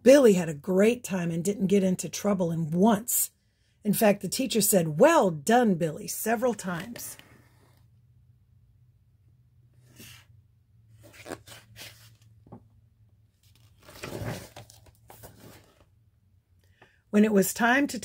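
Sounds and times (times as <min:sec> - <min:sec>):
paper page rustling: 0:13.4 - 0:15.9.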